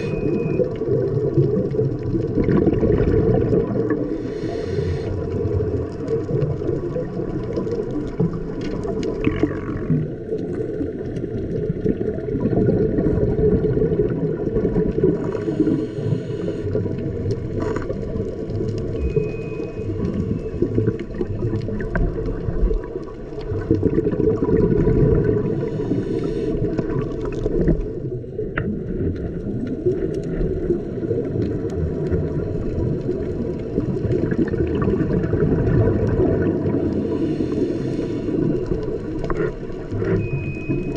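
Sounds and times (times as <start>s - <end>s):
underwater rush of water and bubbles: 0.0s - 40.9s
regulator breathing hiss: 4.1s - 5.2s, 15.3s - 16.8s, 25.5s - 26.8s, 36.9s - 38.5s.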